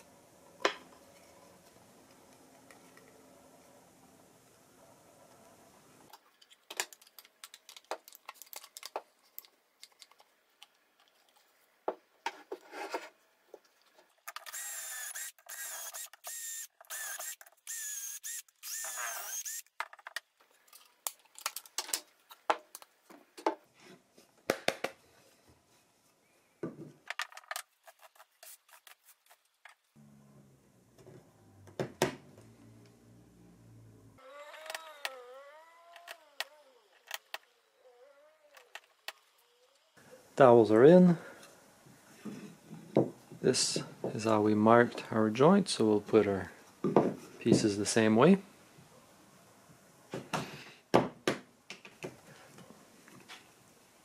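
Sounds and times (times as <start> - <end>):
cordless drill whining: 14.4 - 19.7.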